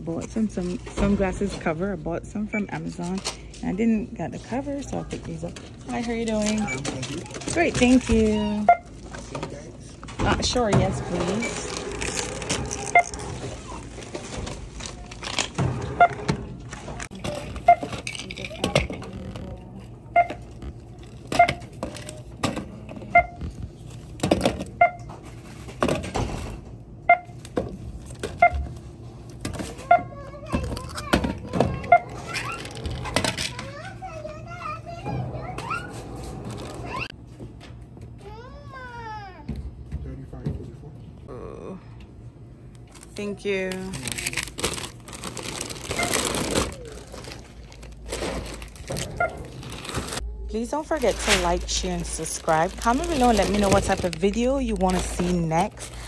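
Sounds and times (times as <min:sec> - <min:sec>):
items clattering: 0:00.0 - 0:26.6, 0:30.5 - 0:34.3, 0:42.9 - 0:56.0
plastic bags rustling: 0:04.5 - 0:15.6, 0:42.9 - 0:56.0
barcode scanner beeping: 0:06.5 - 0:07.0.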